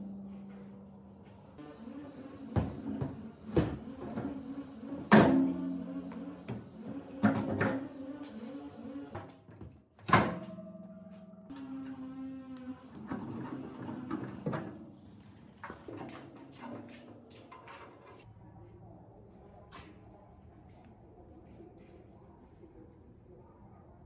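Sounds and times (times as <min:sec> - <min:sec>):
metal knocks and clanks: 0:13.0 - 0:18.2.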